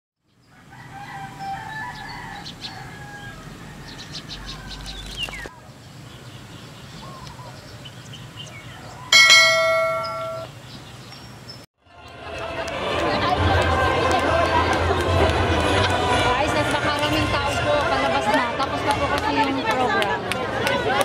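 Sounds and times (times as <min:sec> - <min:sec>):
bird-like chirping: 0:04.0 - 0:11.6
bright bell chime: 0:09.2 - 0:10.5.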